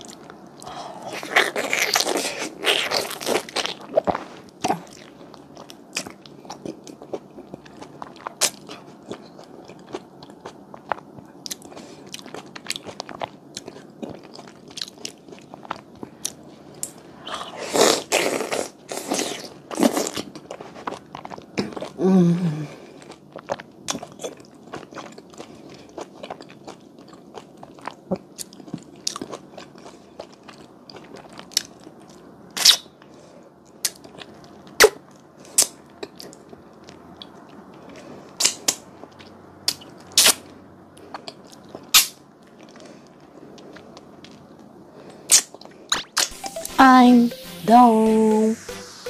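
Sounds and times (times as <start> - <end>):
wet biting and chewing: 1.0 - 21.9
person humming mmm: 22.0 - 22.8.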